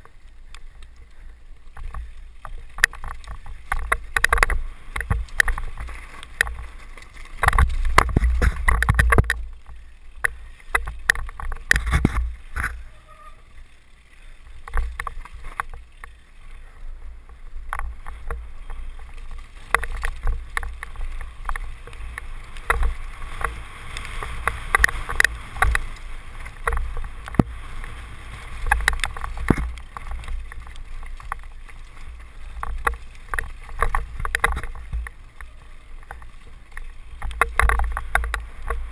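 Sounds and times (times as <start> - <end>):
bike rattling over bumps: 0.0 - 38.9
tyres clattering over stones: 1.7 - 13.0, 17.6 - 38.9.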